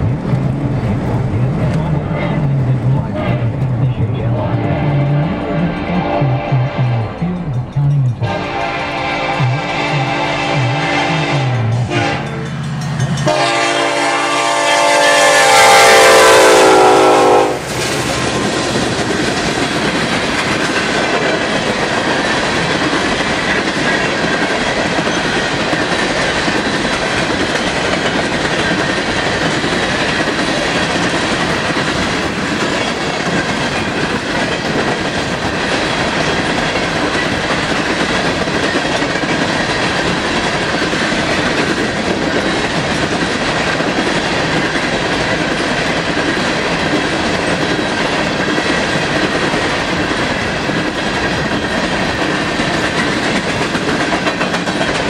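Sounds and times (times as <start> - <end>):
train cars rolling past: 0.0 - 55.0
locomotive air horn: 4.3 - 7.3, 8.2 - 12.5, 13.2 - 17.7.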